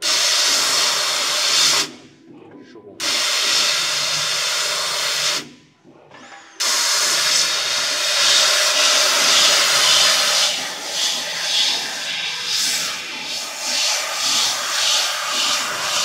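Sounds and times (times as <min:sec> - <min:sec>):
laser cutter gas jet hissing: 0:00.0 - 0:02.0, 0:03.0 - 0:05.5, 0:06.6 - 0:16.0.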